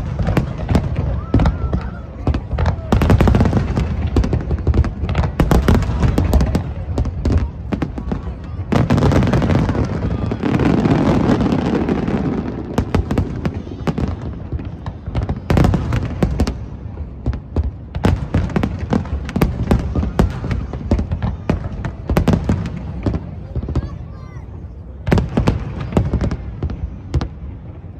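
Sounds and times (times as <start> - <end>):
fireworks bangs and crackling: 0.0 - 27.9.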